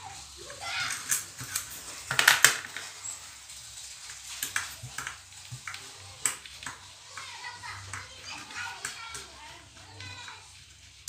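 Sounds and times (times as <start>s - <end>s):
metal parts clicking and clinking: 0.8s - 6.7s.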